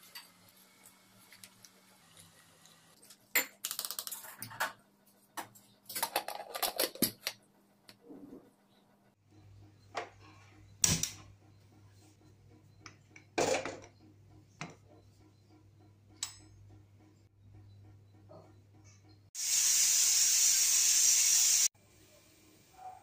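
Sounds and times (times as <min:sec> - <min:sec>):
pressure cooker steam hissing: 0:19.4 - 0:21.7.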